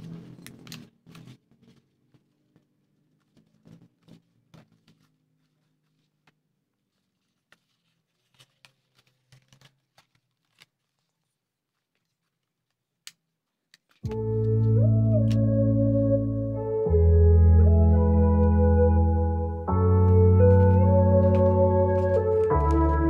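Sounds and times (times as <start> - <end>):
paper rustling and crinkling: 0.0 - 15.4, 20.1 - 23.0
music with keyboard chords: 14.1 - 23.0.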